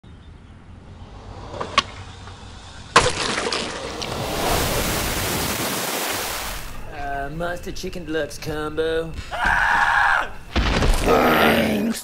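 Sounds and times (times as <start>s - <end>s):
sharp crack: 2.9s - 4.2s.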